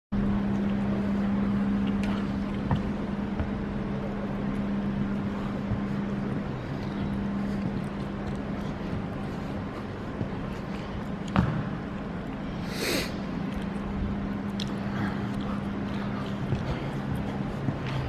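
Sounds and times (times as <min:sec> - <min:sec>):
steady low hum: 0:00.1 - 0:18.0.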